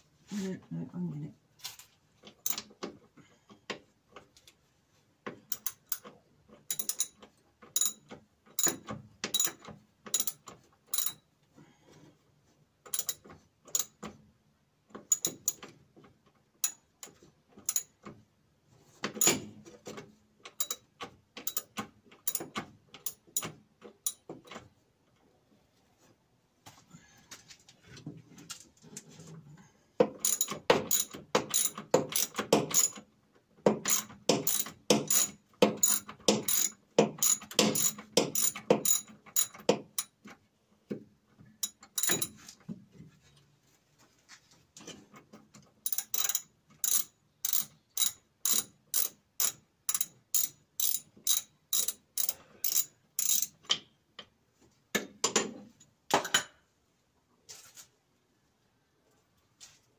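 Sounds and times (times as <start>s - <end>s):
ratchet clicking: 30.2s - 33.0s, 33.9s - 40.1s, 45.8s - 53.6s.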